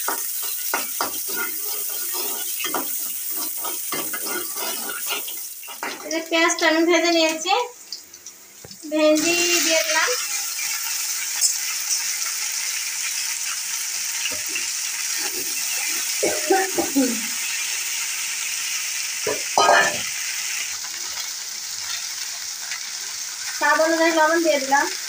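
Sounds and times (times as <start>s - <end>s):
metal spatula scraping pan: 0.0s - 6.1s
vegetables sizzling in oil: 0.0s - 25.0s.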